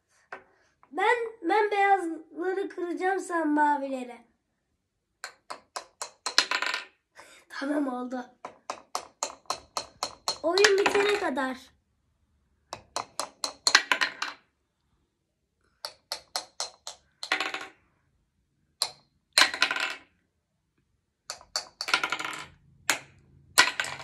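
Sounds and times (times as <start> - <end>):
plastic hammers tapping plastic blocks: 5.2 - 6.9, 8.4 - 11.4, 12.6 - 14.4, 15.7 - 17.8, 18.7 - 20.1, 21.2 - 24.0.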